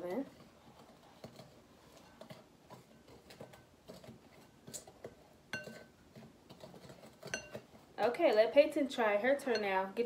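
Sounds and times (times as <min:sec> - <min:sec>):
spoon scraping dry powder: 0:00.2 - 0:08.5
spoon clinking on glass: 0:05.5 - 0:05.9, 0:07.3 - 0:07.6.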